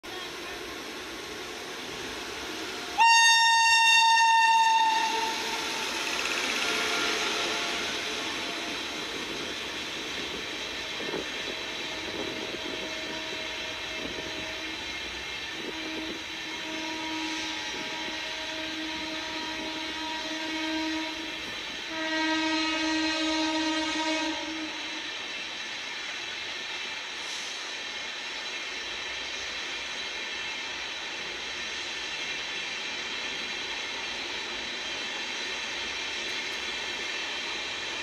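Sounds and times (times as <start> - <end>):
train coaches rolling on rails: 0.0 - 38.0
locomotive horn blast: 3.0 - 8.9, 15.6 - 25.1.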